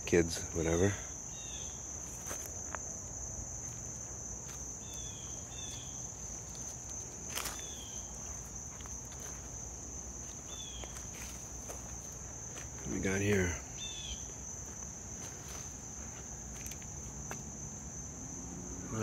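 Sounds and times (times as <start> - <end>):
crickets chirping: 0.0 - 19.0
footsteps in dry leaves: 3.6 - 17.0.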